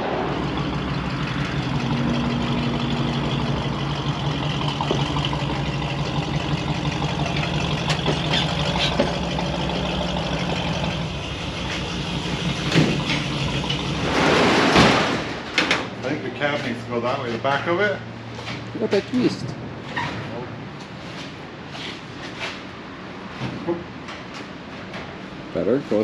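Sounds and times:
loud rushing noise: 0.0s - 3.4s, 13.9s - 15.6s
truck engine running: 0.0s - 19.9s.

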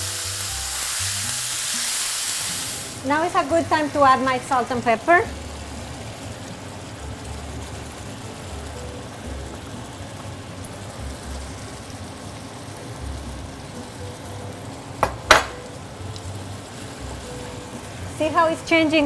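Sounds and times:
meat sizzling in a frying pan: 0.0s - 19.0s
sharp knocks: 15.0s - 15.6s.

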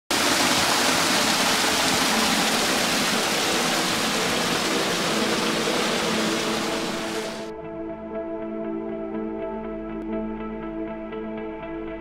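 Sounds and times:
water pouring over a ledge: 0.1s - 7.5s.

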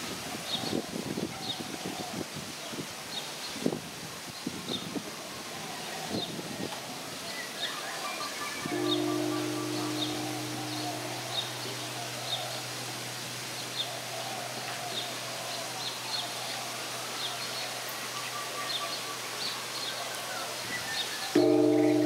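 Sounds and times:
small birds chirping: 7.4s - 22.0s
steady hiss: 8.7s - 22.0s.

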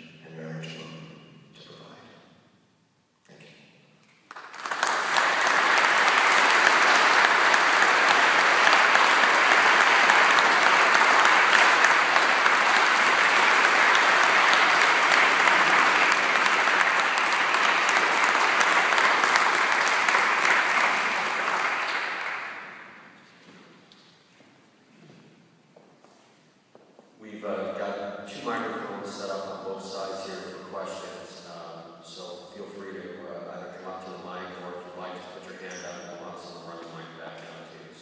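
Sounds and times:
audience applauding: 4.2s - 23.2s.

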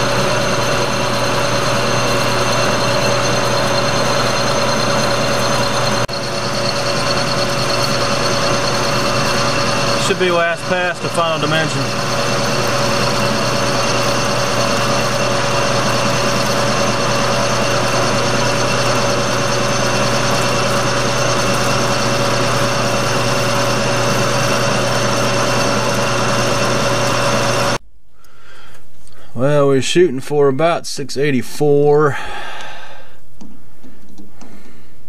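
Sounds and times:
metal lathe humming: 0.0s - 27.8s.

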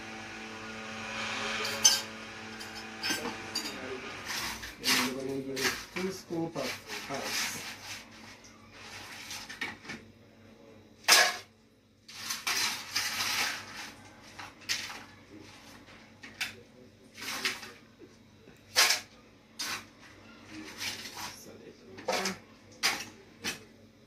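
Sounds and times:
metal spoon scraping a pot: 1.2s - 7.9s.

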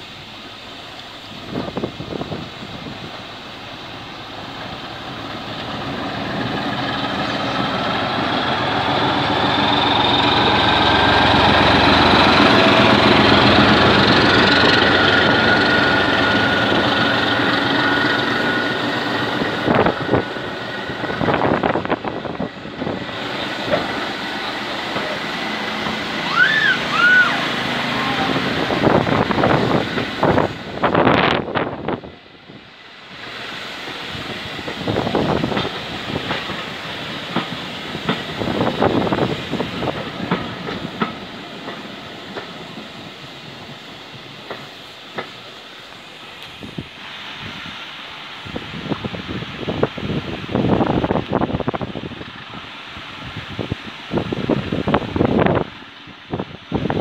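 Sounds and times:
diesel locomotive engine roar: 0.0s - 57.0s
train wheels clicking over rail joints: 0.3s - 32.0s, 33.0s - 46.9s
steady engine whine: 0.9s - 36.6s.

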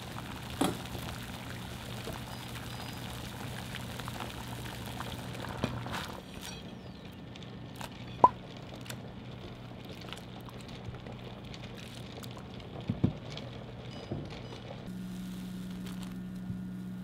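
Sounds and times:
water boiling in pot: 0.0s - 17.0s
steady low hum: 14.8s - 17.0s.

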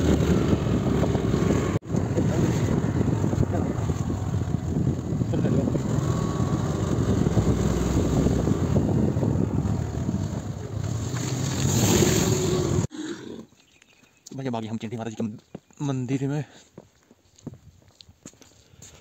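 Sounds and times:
motorbike engine running: 0.0s - 11.1s
wind rushing over microphone: 0.0s - 12.9s.

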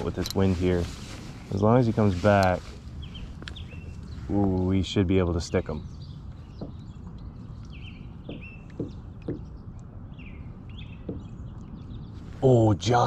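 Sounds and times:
songbird chirping: 0.0s - 13.0s
soft knocks: 6.5s - 7.2s, 8.2s - 9.7s, 11.0s - 11.4s.

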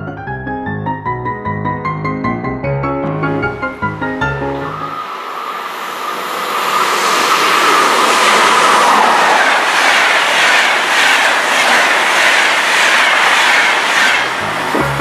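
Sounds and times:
train wheels rushing on rail: 3.8s - 15.0s.

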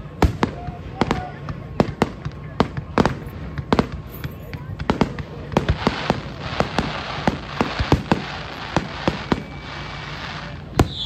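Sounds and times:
fireworks bursting: 0.0s - 11.0s
steady hiss: 5.6s - 11.0s.

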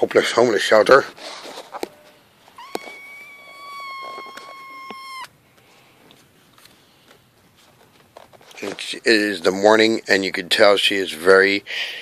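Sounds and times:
kitten meowing: 2.6s - 5.4s.

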